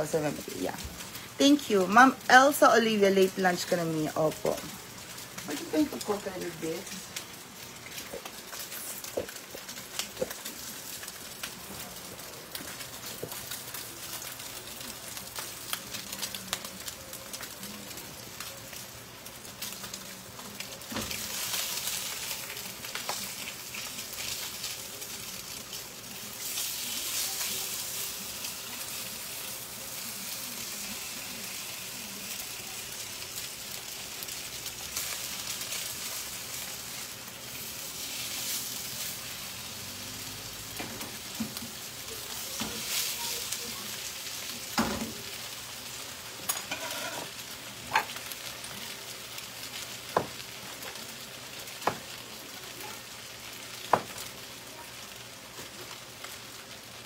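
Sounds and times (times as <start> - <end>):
meat sizzling in a frying pan: 0.0 - 57.0.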